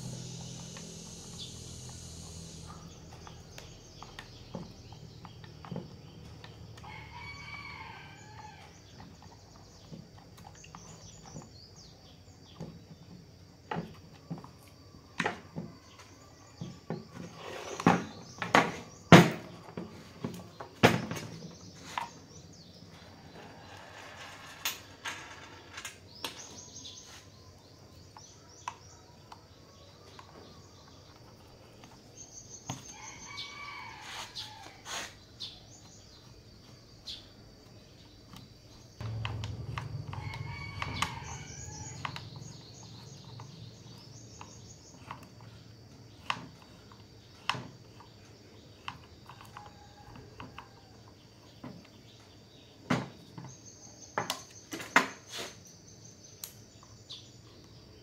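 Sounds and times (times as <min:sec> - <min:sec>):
high insect tone: 0:00.0 - 0:09.0, 0:25.7 - 0:50.1
rooster crowing: 0:06.8 - 0:08.8, 0:32.9 - 0:35.1, 0:39.0 - 0:42.9
low hum: 0:39.0 - 0:43.0.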